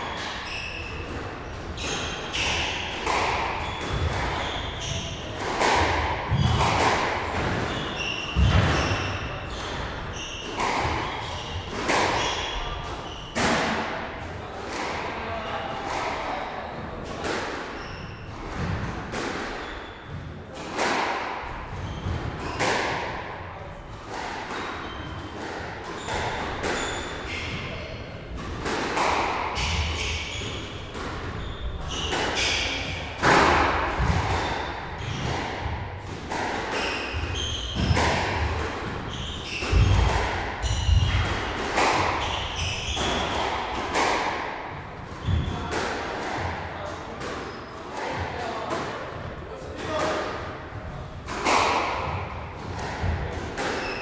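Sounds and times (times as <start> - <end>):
shoes squeaking on wooden floor: 21.8 - 22.6, 29.6 - 32.8, 39.0 - 41.2
squash ball thuds: 28.3 - 46.6.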